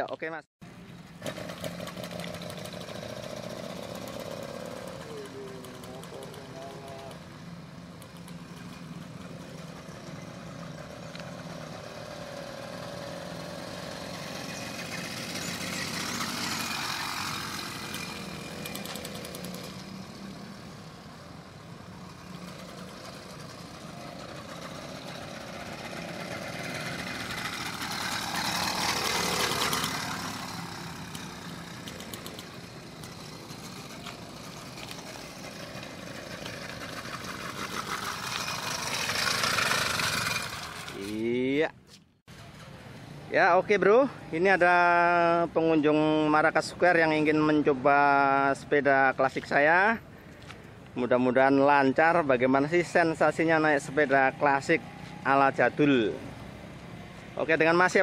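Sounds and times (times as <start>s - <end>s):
small motorbike engine running: 1.1s - 41.5s.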